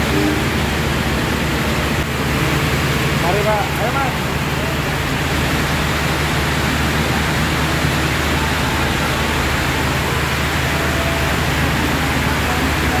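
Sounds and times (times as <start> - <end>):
heavy rain on a roof: 0.0 - 13.0.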